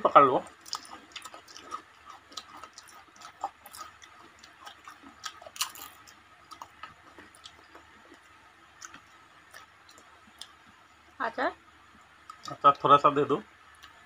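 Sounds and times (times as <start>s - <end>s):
crispy snacks chewed: 0.5s - 10.7s.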